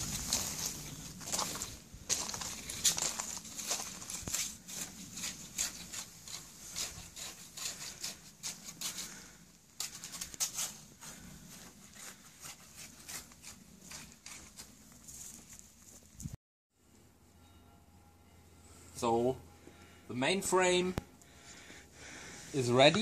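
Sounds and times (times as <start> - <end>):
footsteps crunching on gravel: 0.0 - 6.2.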